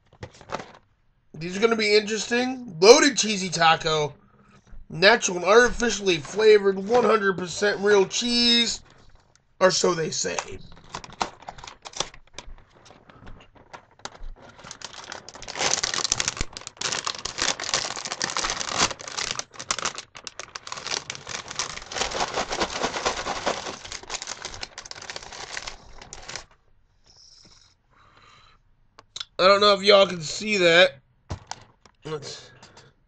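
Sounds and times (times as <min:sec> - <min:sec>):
plastic snack bag crinkling: 0:09.7 - 0:26.5.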